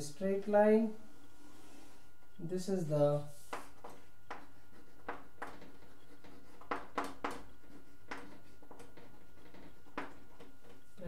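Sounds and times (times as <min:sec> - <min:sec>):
low background hum: 0:00.0 - 0:11.0
chalk tapping and scratching: 0:03.3 - 0:10.9.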